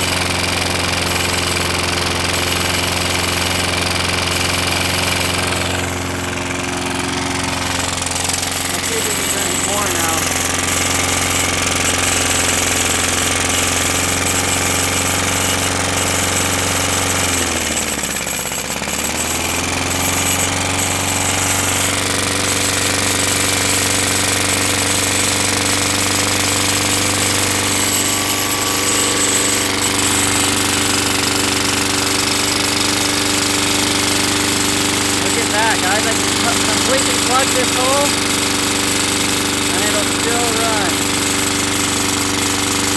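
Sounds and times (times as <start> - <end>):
lawn mower engine running: 0.0 - 42.9.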